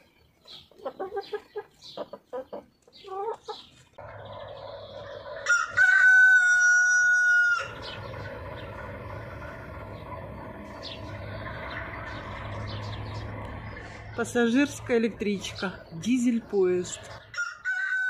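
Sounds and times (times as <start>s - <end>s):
hens clucking: 0.0s - 17.4s
train rumbling past: 4.0s - 17.2s.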